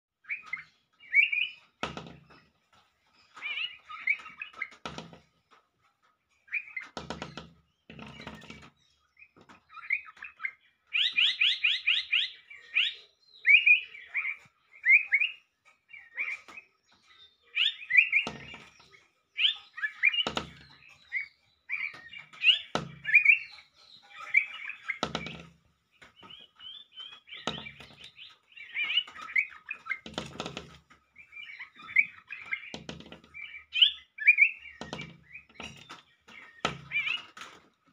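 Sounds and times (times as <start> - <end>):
small bird chirping: 0.2 - 5.4, 6.2 - 37.9
sharp knocks: 1.8 - 2.4, 4.7 - 5.3, 6.9 - 8.7, 18.2 - 18.9, 20.2 - 20.8, 22.6 - 23.2, 25.0 - 25.6, 27.3 - 28.1, 29.9 - 31.0, 32.5 - 33.4, 34.6 - 37.2.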